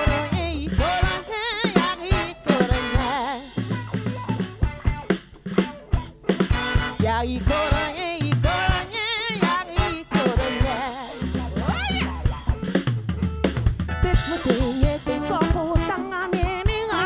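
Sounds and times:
woman singing with vibrato: 0.0s - 3.8s, 6.8s - 12.0s, 14.0s - 17.0s
drum kit: 0.0s - 17.0s
electric bass: 0.0s - 17.0s
electric guitar: 0.0s - 17.0s.

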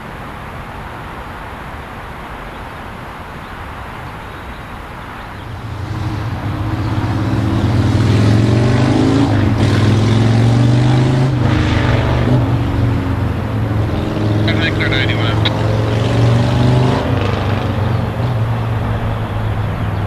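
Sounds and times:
engine droning: 5.3s - 20.0s.

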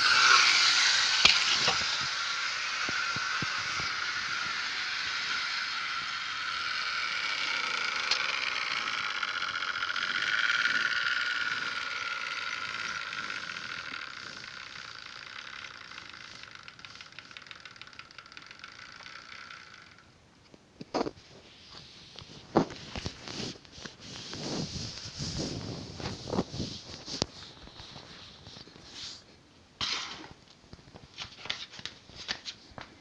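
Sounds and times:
model train whirring on track: 0.0s - 20.2s.

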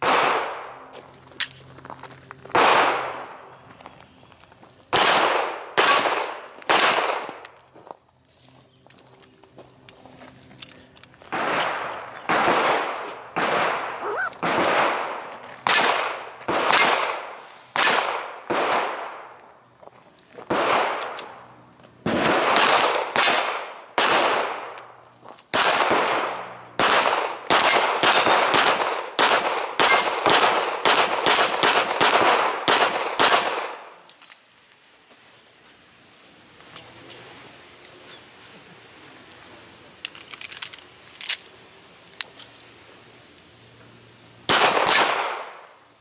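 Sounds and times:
pistol shots with echo: 0.0s - 0.7s, 2.5s - 3.3s, 4.9s - 7.4s, 11.3s - 19.4s, 22.0s - 24.8s, 25.5s - 33.9s, 44.5s - 45.7s.

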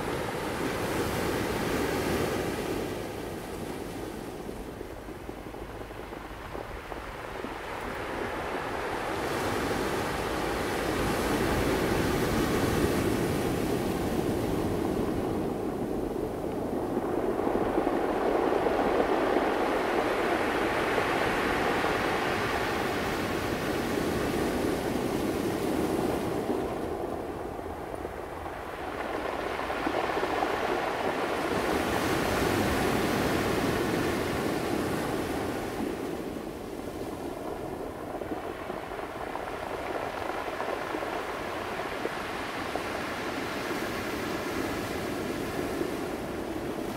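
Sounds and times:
ocean waves breaking: 0.0s - 46.9s.

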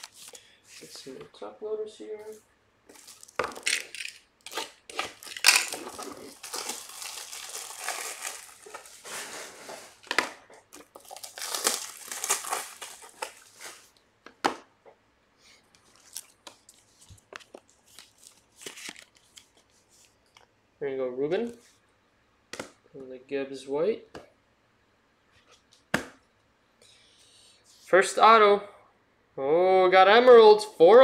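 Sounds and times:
plastic crinkling: 0.0s - 0.9s, 2.9s - 14.0s, 15.8s - 20.2s.

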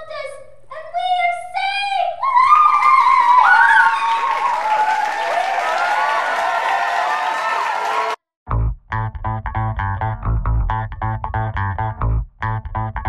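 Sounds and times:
girls cheering: 2.2s - 8.2s
clapping: 2.8s - 8.2s.

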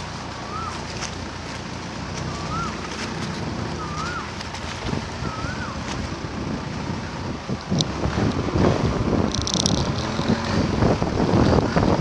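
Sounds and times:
boat engine running: 0.0s - 12.0s
water rushing along hull: 0.0s - 12.0s
wind on microphone: 0.0s - 12.0s
whistled note rising and falling: 2.3s - 2.8s, 3.8s - 4.3s, 5.2s - 5.8s.

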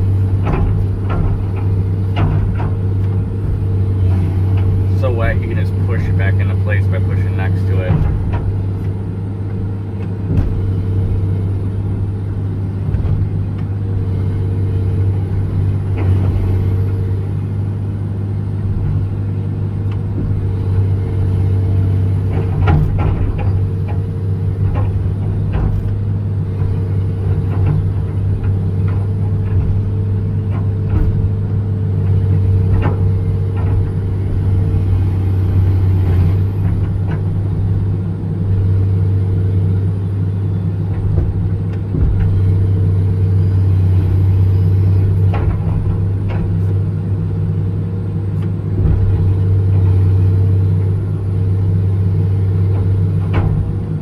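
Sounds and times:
excavator diesel engine running: 0.0s - 54.0s
bucket and linkage knocks: 6.0s - 8.6s.

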